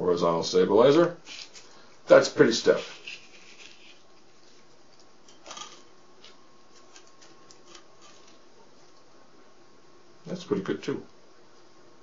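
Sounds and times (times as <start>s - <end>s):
paper rustle: 2.7s - 4.7s.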